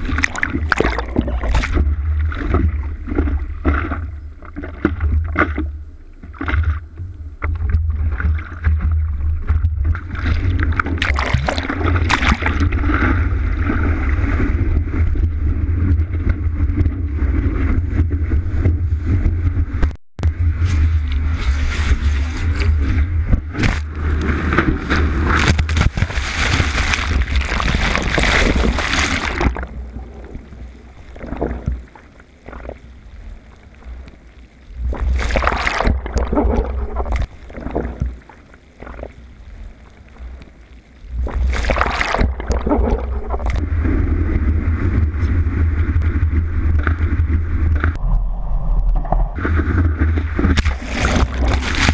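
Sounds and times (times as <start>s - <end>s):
muffled underwater gurgling: 0.0s - 51.9s
surf whitewater rushing: 20.8s - 30.7s.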